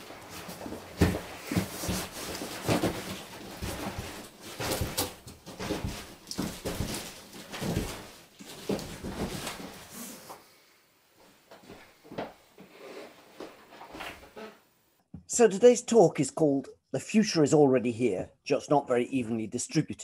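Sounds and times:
footsteps: 0:00.0 - 0:10.5.

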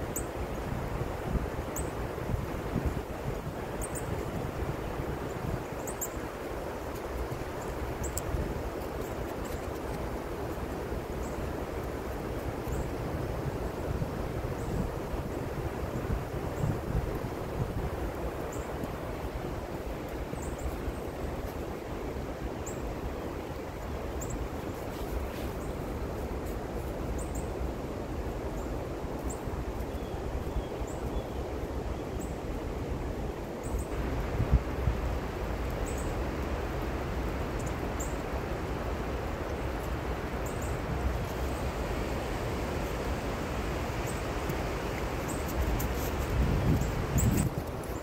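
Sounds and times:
wind buffeting microphone: 0:33.9 - 0:37.6, 0:39.9 - 0:48.0.

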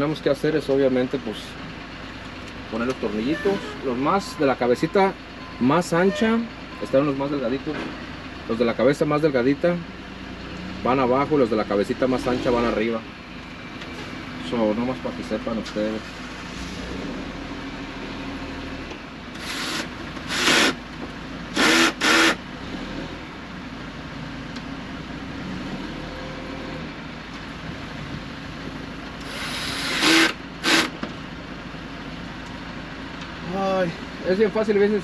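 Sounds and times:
cordless drill whirring: 0:19.4 - 0:20.8, 0:21.6 - 0:22.4, 0:29.2 - 0:31.0.

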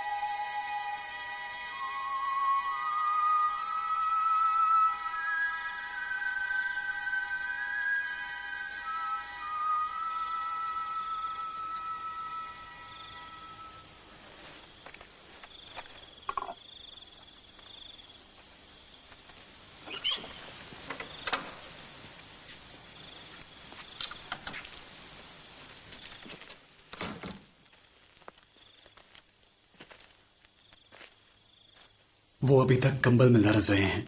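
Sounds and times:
background music: 0:00.0 - 0:13.9
crickets chirring: 0:00.0 - 0:34.0.

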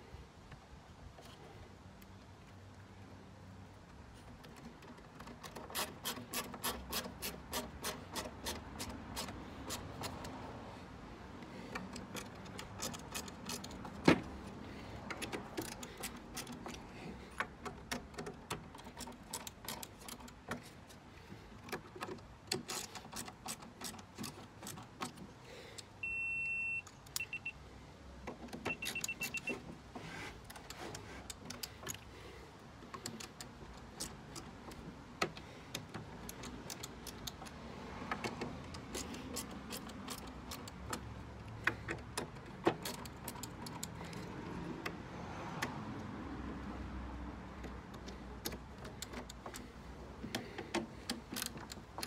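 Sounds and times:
high electronic beep: 0:26.0 - 0:27.6, 0:28.7 - 0:29.6
screwdriver clicking: 0:33.0 - 0:44.2.

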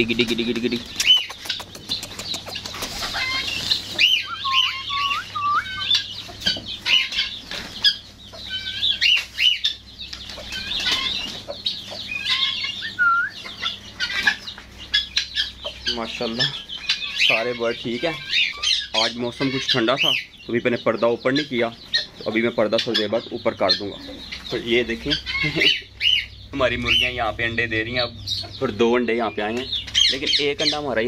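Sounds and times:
chickens clucking: 0:00.0 - 0:31.0
wings flapping: 0:00.1 - 0:04.2.

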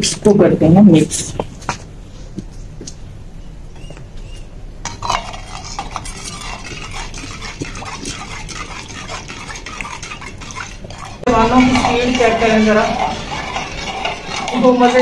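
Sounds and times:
spoon scraping clay pot: 0:04.4 - 0:15.0.

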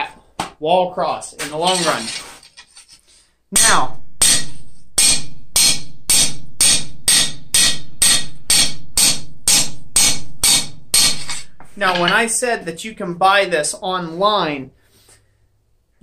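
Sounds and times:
hammer striking steel on anvil: 0:03.6 - 0:12.2.

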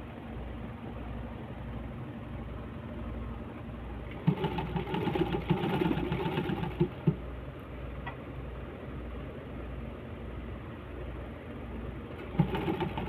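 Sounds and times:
sewing machine needle clatter: 0:04.1 - 0:07.2, 0:12.2 - 0:13.0.

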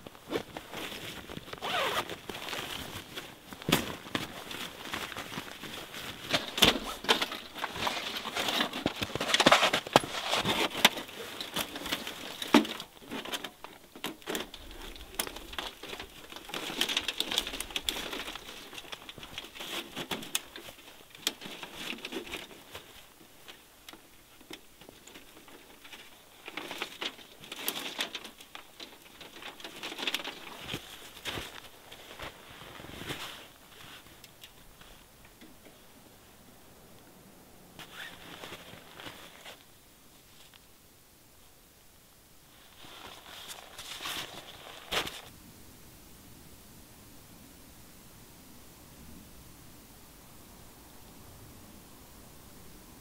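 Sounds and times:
tent fabric rustling: 0:00.0 - 0:35.9, 0:37.8 - 0:40.7, 0:42.4 - 0:45.3.

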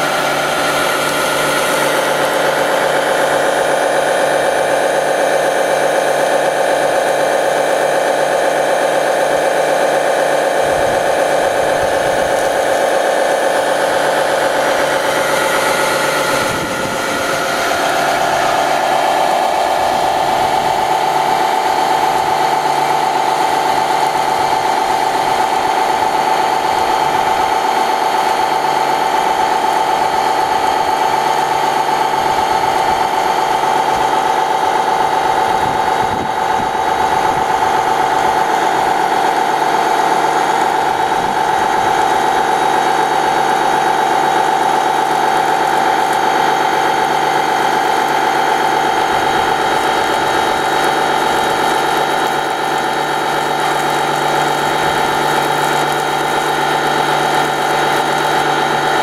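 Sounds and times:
toy truck motor whining: 0:40.6 - 0:59.0.

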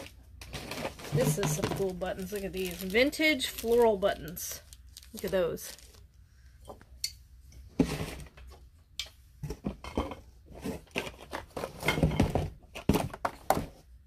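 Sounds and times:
small objects handled on a tabletop: 0:00.0 - 0:13.9.

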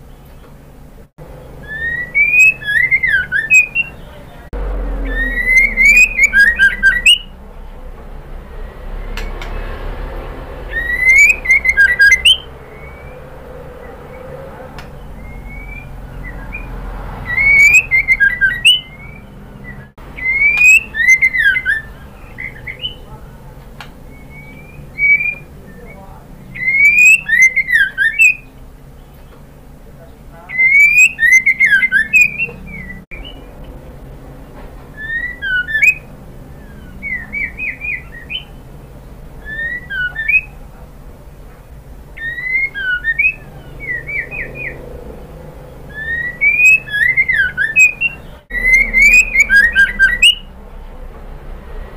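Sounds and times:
bird whistling and chirping: 0:01.4 - 0:07.4, 0:10.7 - 0:14.4, 0:15.0 - 0:23.2, 0:24.1 - 0:28.6, 0:30.5 - 0:33.5, 0:35.0 - 0:38.6, 0:39.4 - 0:40.6, 0:42.2 - 0:44.9, 0:45.6 - 0:50.5.

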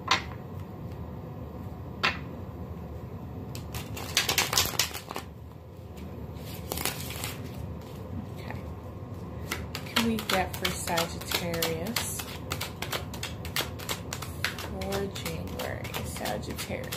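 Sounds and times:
cards riffle-shuffled: 0:03.6 - 0:05.3, 0:06.4 - 0:08.0, 0:09.4 - 0:16.9.

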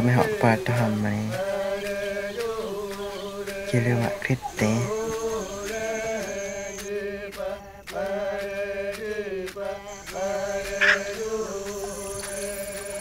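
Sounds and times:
person chanting long notes: 0:00.0 - 0:06.8.

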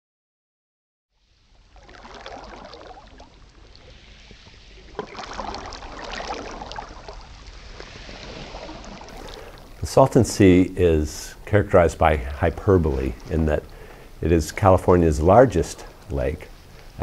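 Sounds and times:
small water splashes: 0:01.2 - 0:10.4
water lapping on pebbles: 0:01.2 - 0:17.0.

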